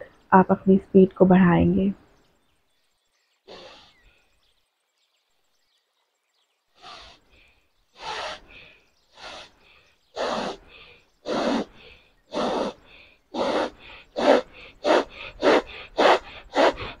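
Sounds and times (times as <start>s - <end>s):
forceful breathing through nose: 3.4s - 4.5s, 6.7s - 17.0s.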